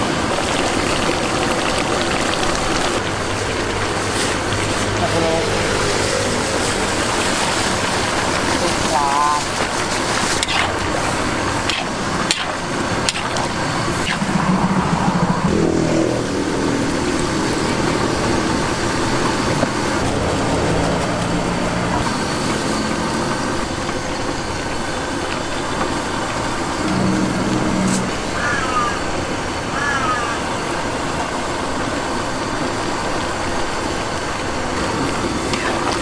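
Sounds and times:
road traffic: 0.0 - 36.0
loud engine passing: 3.8 - 8.3, 11.4 - 23.8, 26.6 - 29.4.

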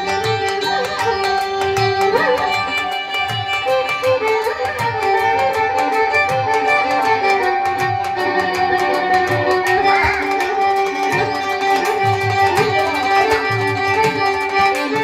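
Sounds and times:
held drone: 0.0 - 15.0
high ticking percussion: 0.0 - 15.0
violin melody: 0.0 - 15.0.

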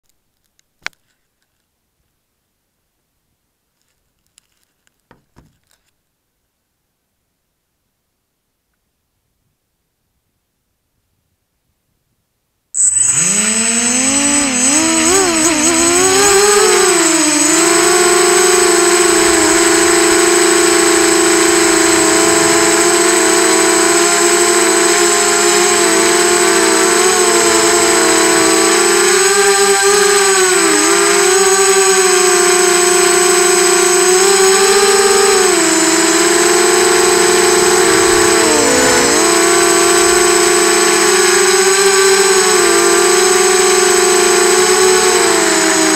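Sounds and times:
thin steady high tone: 12.8 - 45.8
quadcopter motors whining: 12.8 - 45.9.

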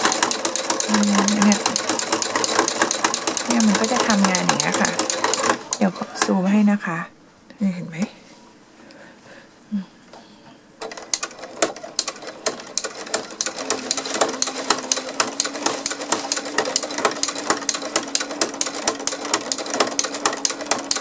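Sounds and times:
sewing machine stitching clicks: 0.0 - 6.3, 10.8 - 21.0
sewing machine motor hum: 0.0 - 6.4, 10.8 - 21.0.

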